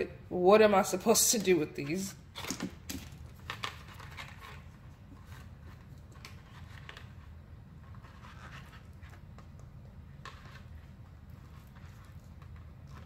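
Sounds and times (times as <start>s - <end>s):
metal tool scraping plastic: 2.1s - 9.6s.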